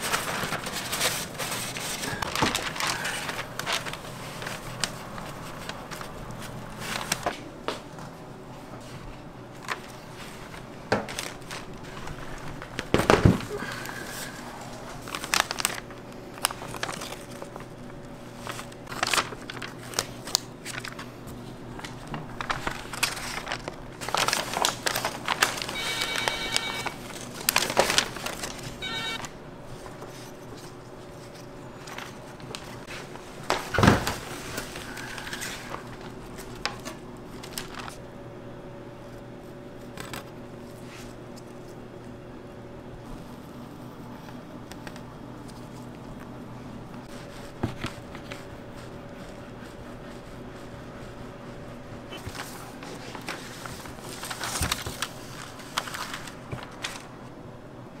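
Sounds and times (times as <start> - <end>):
baking paper crinkling: 0.0 - 38.1, 43.0 - 57.4.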